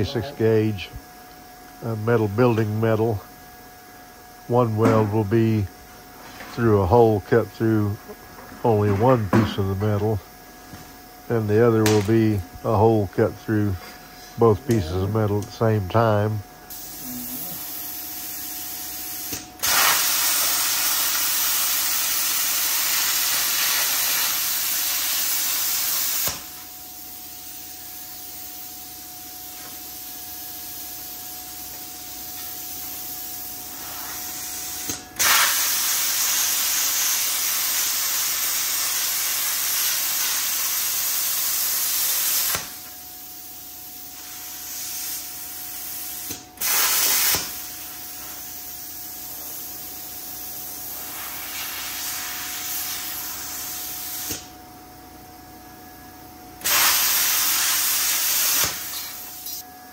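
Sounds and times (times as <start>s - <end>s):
machine idle hiss: 0.0s - 55.6s, 56.5s - 59.6s
plasma cutter hissing: 16.7s - 54.5s, 56.6s - 59.6s.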